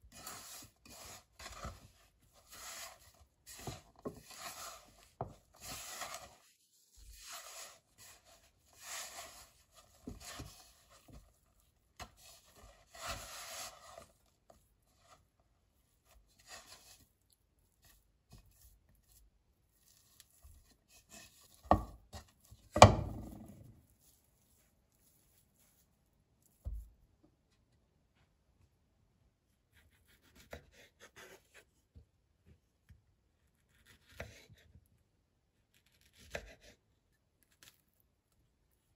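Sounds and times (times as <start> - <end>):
flour rustling in a bowl: 0.0 - 27.0.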